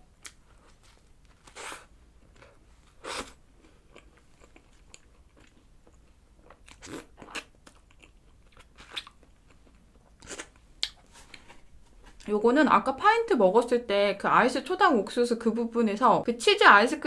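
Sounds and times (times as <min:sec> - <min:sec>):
quiet chewing: 0:00.2 - 0:12.3.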